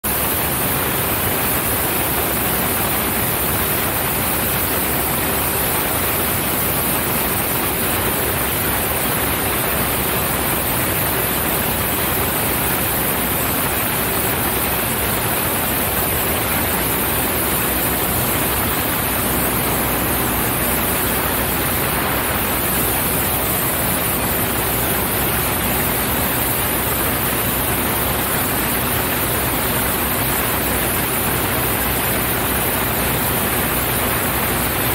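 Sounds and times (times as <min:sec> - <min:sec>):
airplane wind and engine noise: 0:00.0 - 0:34.9.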